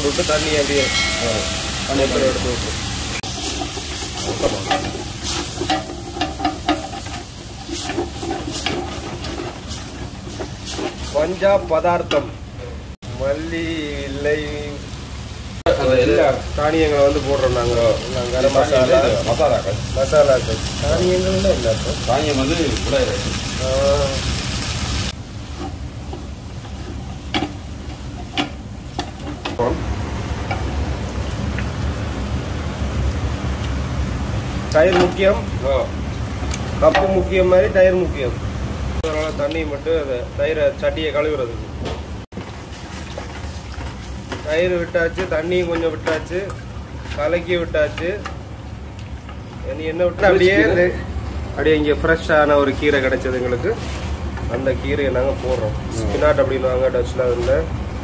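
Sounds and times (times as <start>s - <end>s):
food sizzling: 0.0s - 51.0s
spoon clinking against pot: 0.8s - 1.8s.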